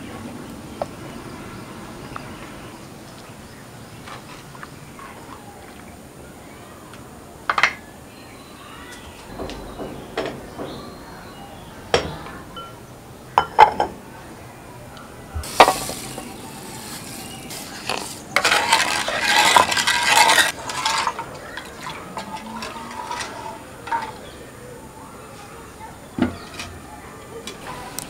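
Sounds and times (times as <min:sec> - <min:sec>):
wooden spoon knocking clay pots: 0:09.3 - 0:12.8, 0:15.4 - 0:24.3.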